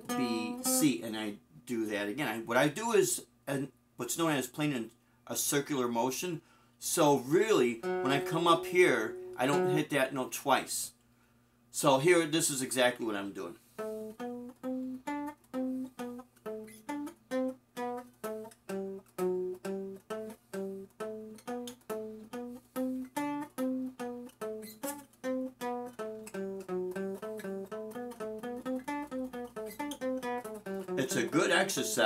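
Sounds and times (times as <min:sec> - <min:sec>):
acoustic guitar playing a scale: 0:00.0 - 0:01.4, 0:06.8 - 0:10.6, 0:13.6 - 0:32.0.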